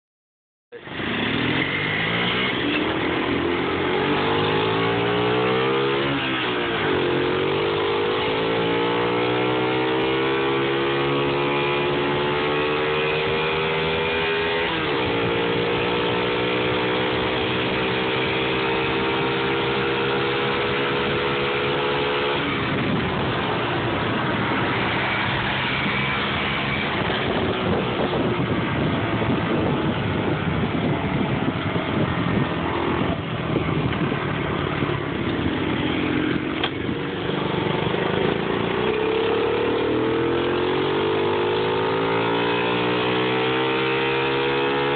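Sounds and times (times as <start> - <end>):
mini bike engine accelerating: 0.8 - 44.9
rushing noise: 20.5 - 40.1.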